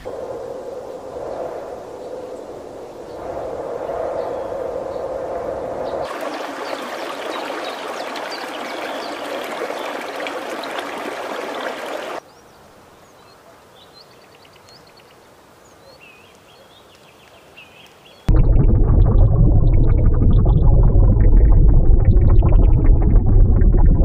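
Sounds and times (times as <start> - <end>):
running water rushing: 6.0 - 12.2.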